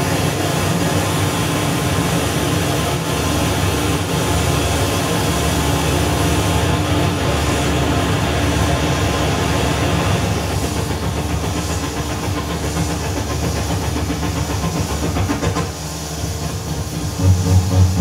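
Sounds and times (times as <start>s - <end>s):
hissing electronic drone: 16.4s - 18.0s
low synth pulse: 17.0s - 18.0s
steady synth tone: 17.0s - 18.0s.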